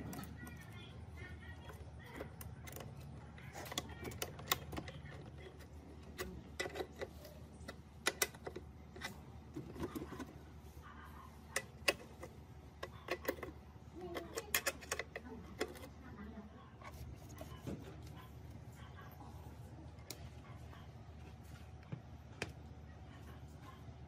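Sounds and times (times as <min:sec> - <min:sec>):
faint low hum: 0:00.0 - 0:24.0
metal clicking on plastic housing: 0:11.6 - 0:15.9.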